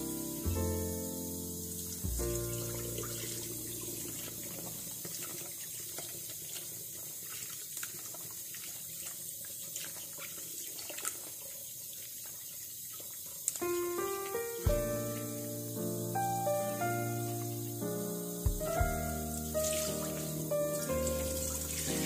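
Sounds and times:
tap water running into bowl: 0.4 - 17.8, 18.4 - 22.0
water splashing from hands: 19.1 - 22.0.

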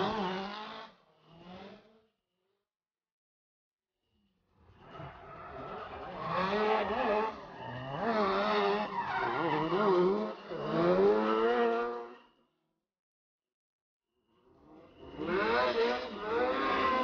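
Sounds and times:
car engines revving: 0.0 - 2.0, 4.7 - 12.2, 14.7 - 17.0.

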